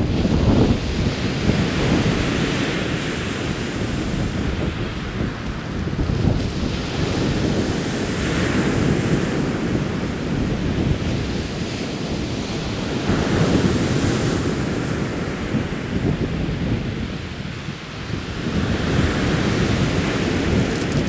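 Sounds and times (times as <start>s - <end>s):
wind buffeting microphone: 0.0s - 21.0s.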